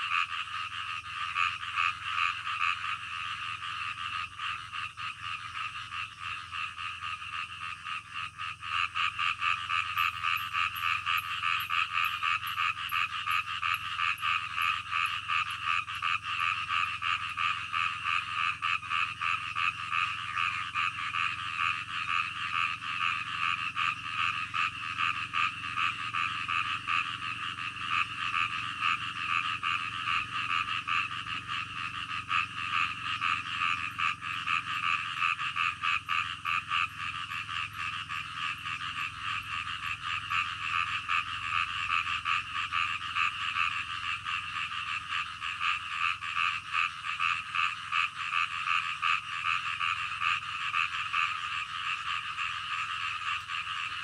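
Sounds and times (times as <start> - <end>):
frogs croaking chorus: 0.0 - 54.0.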